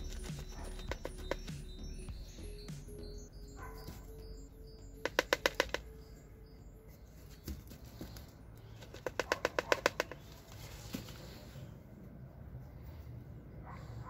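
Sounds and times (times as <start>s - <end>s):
rapid clicking: 5.0s - 6.0s, 8.8s - 10.3s.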